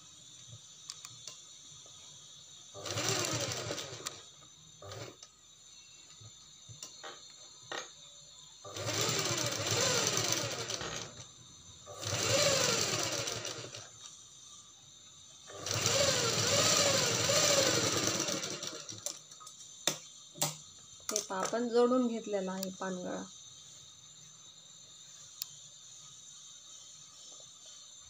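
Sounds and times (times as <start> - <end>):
sewing machine stitching: 2.8 - 4.2, 4.8 - 5.2, 8.7 - 11.2, 11.9 - 13.9, 15.5 - 19.2.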